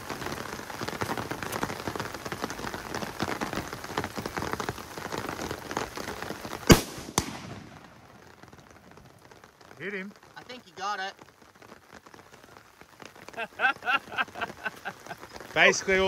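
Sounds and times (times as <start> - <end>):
rain falling: 0.0 - 16.0
rifle shot: 6.7 - 7.8.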